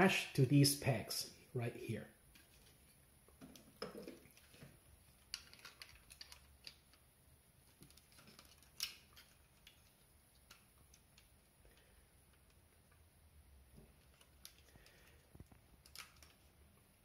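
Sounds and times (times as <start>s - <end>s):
plastic toy parts clicking: 5.2s - 7.0s, 7.8s - 11.3s.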